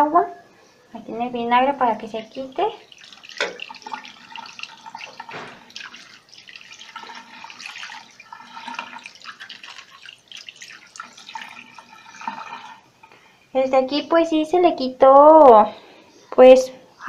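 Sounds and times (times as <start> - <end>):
water running and splashing: 1.8 - 13.2.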